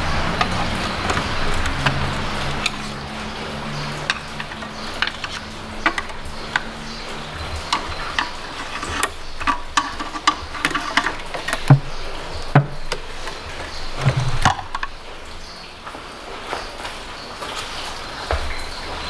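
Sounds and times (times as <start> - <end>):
tools and metal parts clicking: 0.0 - 15.0.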